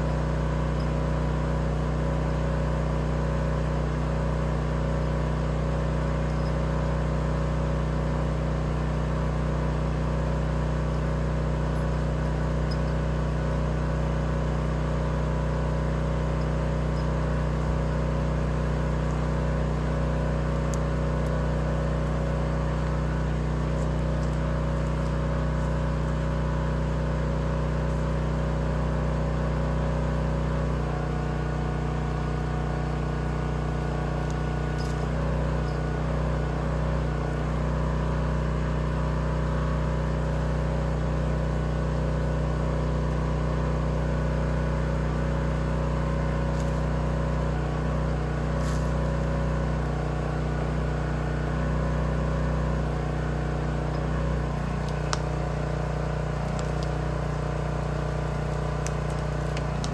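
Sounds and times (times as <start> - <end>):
small engine idling: 0.0 - 59.9.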